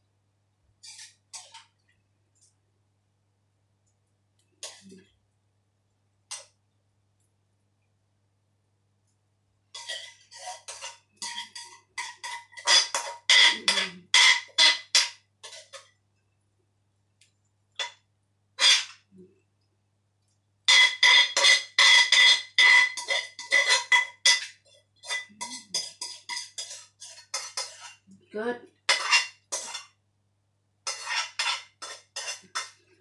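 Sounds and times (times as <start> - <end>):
metal spatula scraping a wok: 0.8 - 1.7, 9.7 - 15.9, 18.6 - 19.1, 20.7 - 28.0, 28.9 - 30.0, 30.8 - 32.8.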